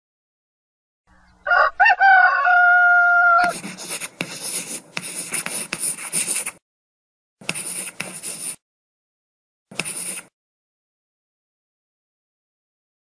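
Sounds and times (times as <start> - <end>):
rooster crowing: 1.4 - 3.6.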